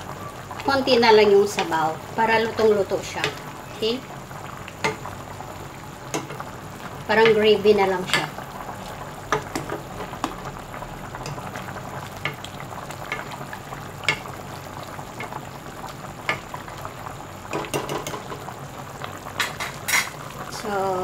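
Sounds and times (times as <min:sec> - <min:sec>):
broth boiling and bubbling: 0:00.0 - 0:21.0
metal ladle knocking on pot: 0:09.3 - 0:10.4, 0:17.5 - 0:18.4.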